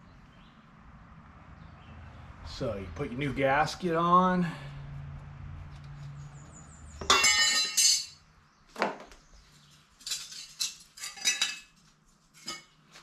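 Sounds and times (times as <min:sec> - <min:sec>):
metal parts clinking and scraping: 0:07.0 - 0:08.2, 0:10.0 - 0:12.7.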